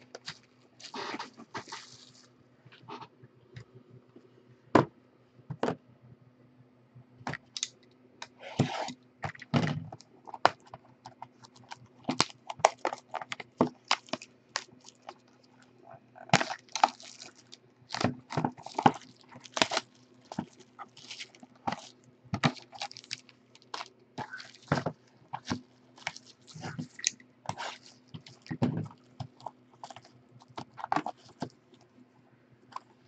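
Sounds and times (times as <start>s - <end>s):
foil packs crinkling: 0.0s - 2.3s, 11.3s - 31.5s
faint steady hum: 0.0s - 33.0s.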